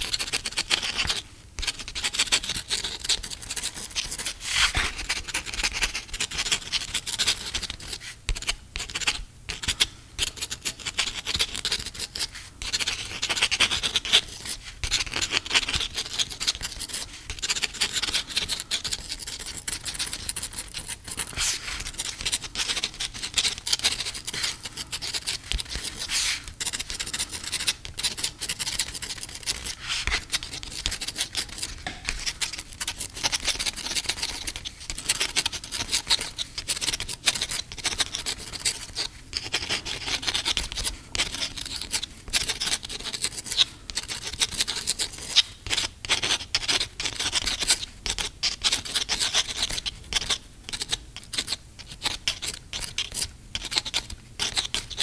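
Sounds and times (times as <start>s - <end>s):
pen scratching on paper: 0.0s - 55.0s.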